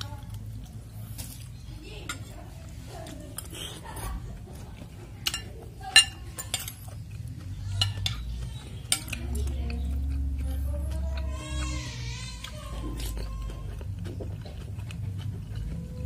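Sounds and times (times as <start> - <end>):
spoon and fork clinking bowl: 5.2 - 7.0.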